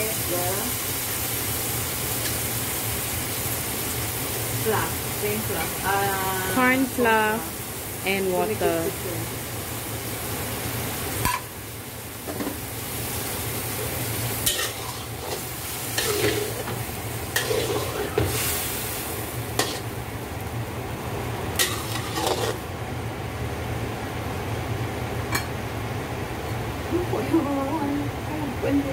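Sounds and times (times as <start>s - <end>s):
sauce sizzling: 0.0s - 26.9s
utensils scraping in wok: 13.8s - 19.9s, 21.6s - 22.6s
utensils clinking against pan: 14.4s - 15.4s, 16.0s - 16.8s, 21.6s - 22.6s.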